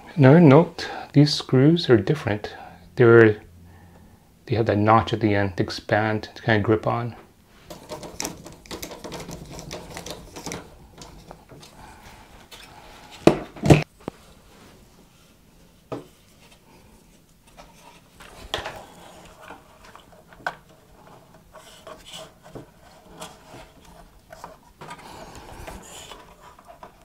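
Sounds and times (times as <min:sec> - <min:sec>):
fan knocking and rubbing against case: 0:07.7 - 0:11.6.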